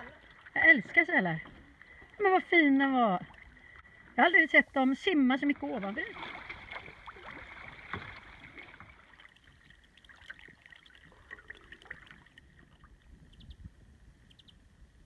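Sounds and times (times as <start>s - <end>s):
paddle drips and splashes: 0.0s - 4.2s, 5.3s - 13.4s
soft ticks: 14.2s - 14.6s.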